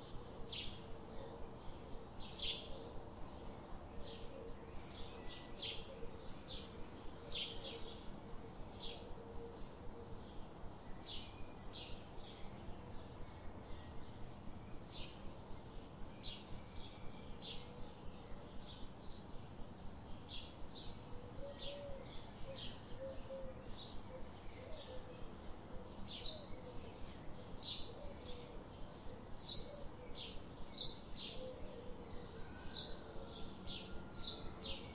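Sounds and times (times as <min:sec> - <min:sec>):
small birds chirping: 0:10.3 - 0:34.9.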